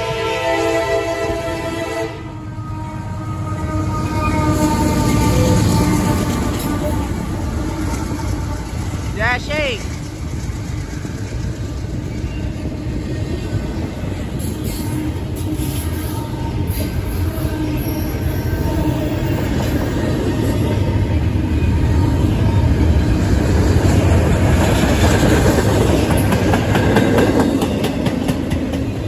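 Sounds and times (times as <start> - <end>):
train wheels clacking on rail: 4.5 - 20.9, 22.8 - 29.0.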